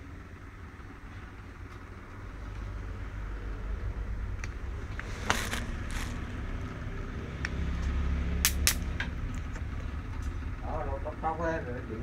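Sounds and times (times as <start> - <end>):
electric swatter zapping: 8.4 - 8.9.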